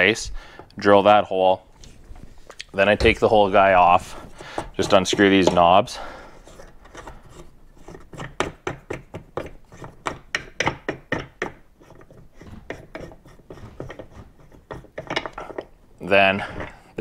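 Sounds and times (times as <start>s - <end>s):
knobs unscrewing scraping clicks: 6.4s - 16.7s.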